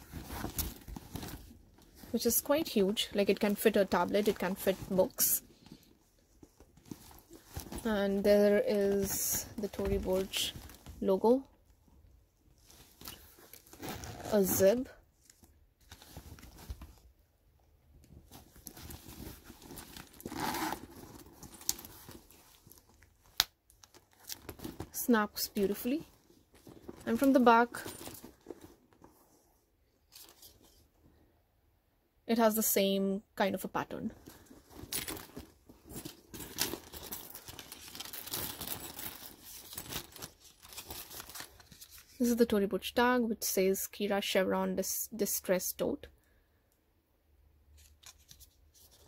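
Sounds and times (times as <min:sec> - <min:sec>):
leather bag rustling: 0:00.0 - 0:11.0, 0:12.6 - 0:14.9, 0:18.2 - 0:23.1, 0:24.0 - 0:29.4, 0:34.2 - 0:42.1.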